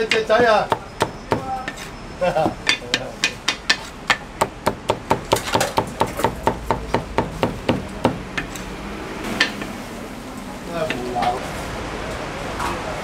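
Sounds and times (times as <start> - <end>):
cleaver chopping on wooden block: 0.0 - 1.8, 2.5 - 8.5.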